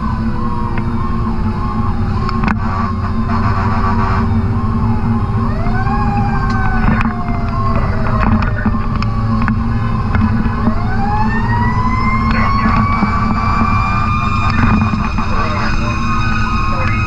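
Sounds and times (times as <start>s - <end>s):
diesel engine drone: 0.0s - 17.0s
fire truck siren: 0.0s - 17.0s.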